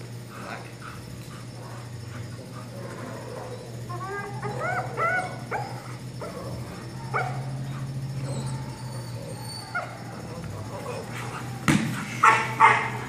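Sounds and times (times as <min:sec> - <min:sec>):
steady low hum: 0:00.0 - 0:13.0
puppy yipping and whining: 0:01.6 - 0:11.6.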